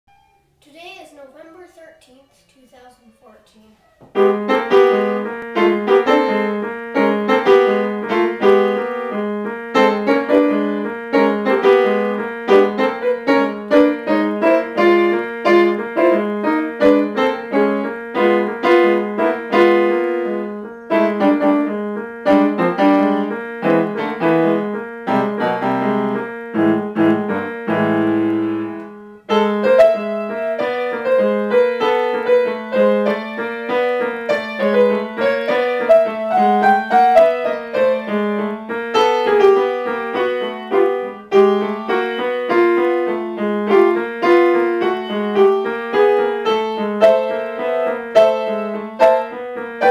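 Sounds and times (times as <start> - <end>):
grand piano playing: 4.1 - 49.9.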